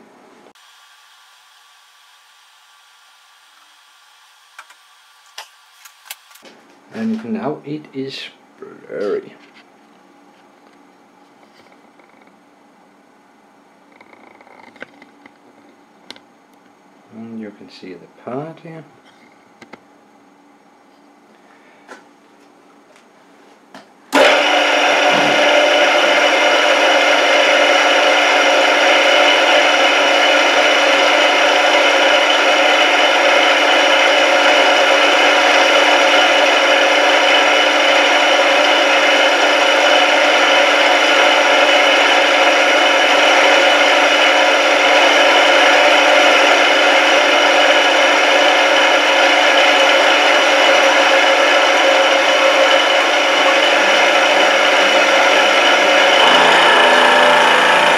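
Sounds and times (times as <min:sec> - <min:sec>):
end mill cutting metal: 0:52.7 - 0:57.9.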